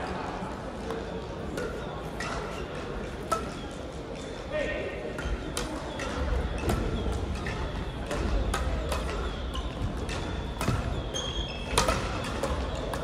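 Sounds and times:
rackets striking shuttlecock: 0:00.8 - 0:04.5, 0:05.1 - 0:13.0
shoe squeak: 0:10.4 - 0:11.9.

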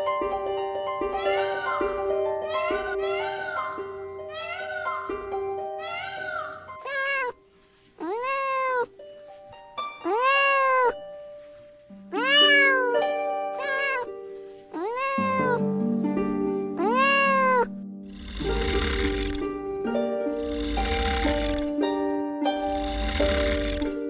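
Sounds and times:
soft background music: 0:00.0 - 0:24.0
cat meowing: 0:05.9 - 0:07.4, 0:08.0 - 0:08.9, 0:10.0 - 0:11.0, 0:12.1 - 0:13.0, 0:13.6 - 0:14.1, 0:14.7 - 0:15.6, 0:16.8 - 0:19.4.

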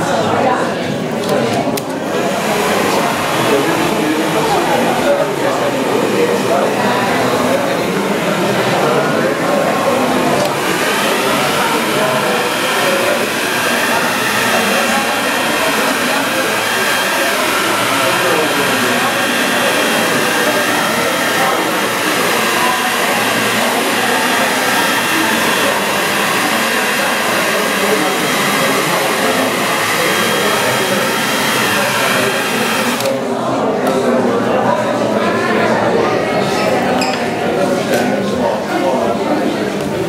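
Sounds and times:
hair dryer running: 0:02.0 - 0:33.2.

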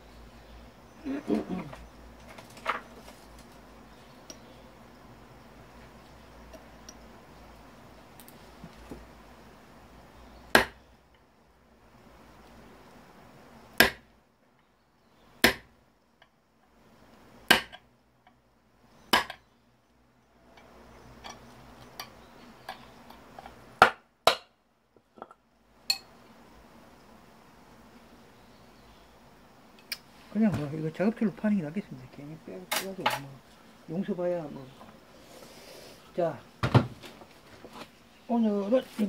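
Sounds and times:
light metal taps and clinks: 0:04.2 - 0:04.5, 0:06.5 - 0:07.1.

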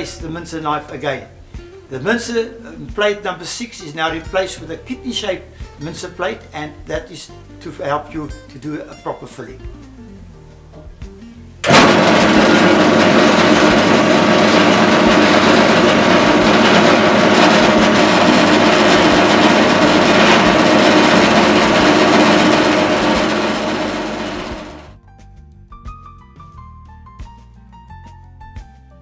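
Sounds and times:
electric motor running: 0:11.6 - 0:25.0.

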